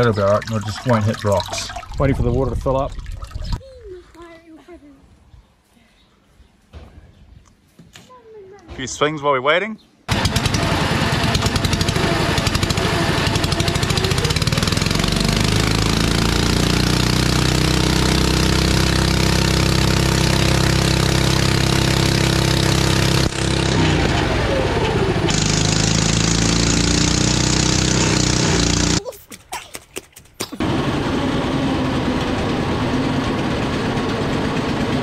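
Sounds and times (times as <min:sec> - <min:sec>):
water churning and splashing: 0:00.0 - 0:03.6
small engine running hard: 0:10.1 - 0:29.0, 0:30.6 - 0:35.0.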